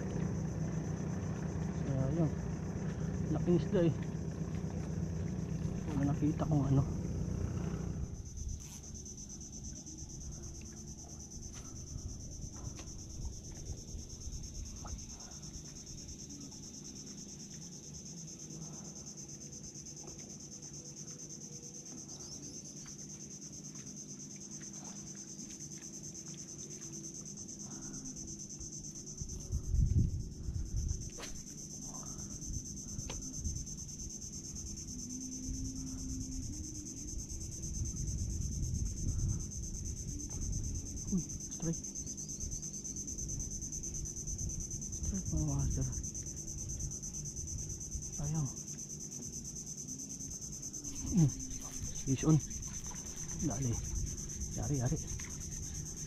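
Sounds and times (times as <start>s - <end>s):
low handling rumble: 0.0s - 18.4s
high-pitched insect drone: 0.0s - 56.0s.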